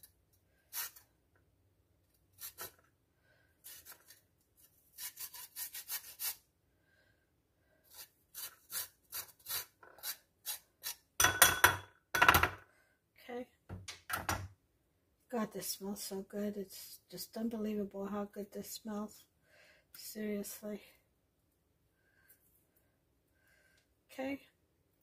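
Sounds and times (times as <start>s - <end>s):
spoon scraping ginger skin: 0.0s - 1.1s, 2.3s - 2.9s, 3.6s - 6.5s, 7.9s - 11.2s.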